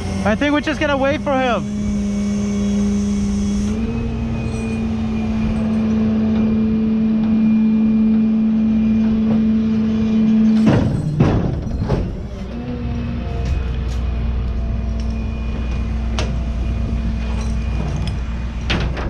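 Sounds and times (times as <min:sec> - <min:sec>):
tow truck hydraulic pump humming: 0:00.0 - 0:19.0
sharp metallic clunks: 0:10.5 - 0:12.3.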